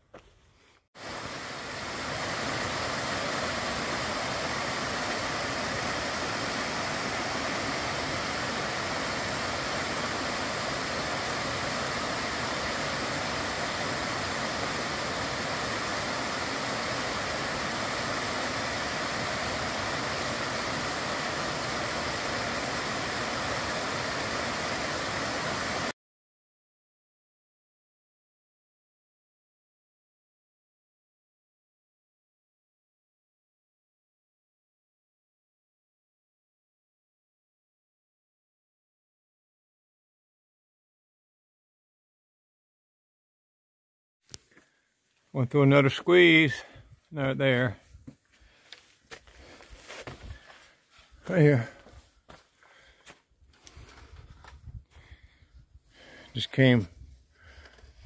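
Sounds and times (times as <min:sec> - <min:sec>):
waterfall rushing and splashing: 0:01.0 - 0:25.9.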